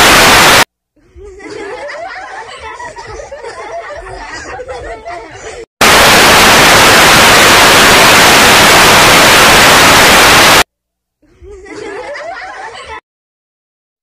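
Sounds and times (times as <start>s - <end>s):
tv static hiss: 0.0s - 0.7s, 5.8s - 10.7s.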